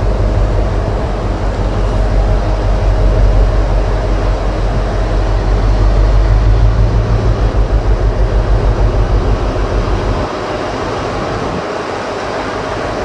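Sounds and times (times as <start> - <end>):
diesel locomotive engine drone: 0.0 - 13.0.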